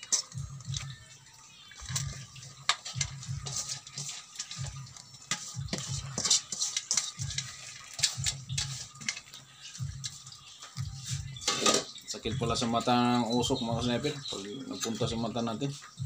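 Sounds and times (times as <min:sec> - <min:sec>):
scraping in a metal wok: 0:00.0 - 0:00.4, 0:01.8 - 0:12.0
noodles sizzling in a wok: 0:00.0 - 0:12.2.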